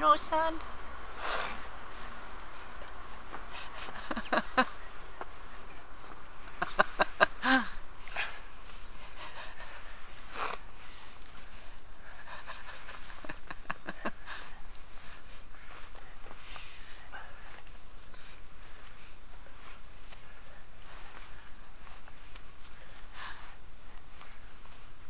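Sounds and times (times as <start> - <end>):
breathy puff: 1.0 - 2.1, 9.1 - 11.2.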